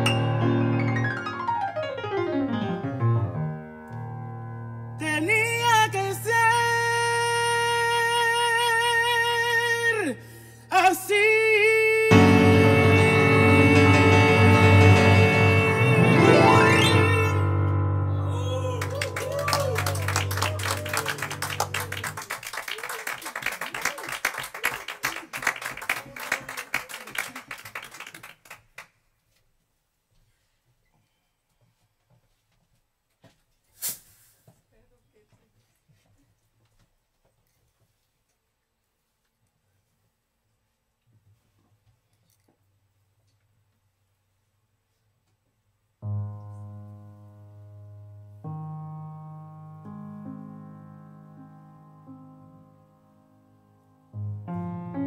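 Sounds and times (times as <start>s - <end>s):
piano chords ringing: 0.0s - 5.6s, 12.1s - 22.2s, 46.0s - 55.0s
audience applauding: 18.4s - 28.9s.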